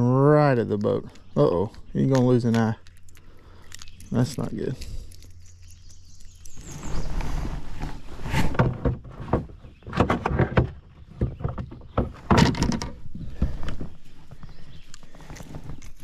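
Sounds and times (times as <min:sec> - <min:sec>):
knocks and thumps against a kayak: 0:08.3 - 0:14.0.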